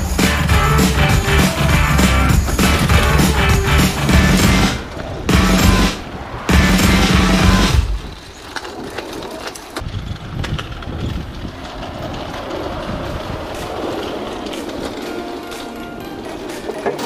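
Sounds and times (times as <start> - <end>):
music: 0.0 - 7.9, 15.0 - 17.0
mountain bike rattling over rough ground: 7.9 - 17.0.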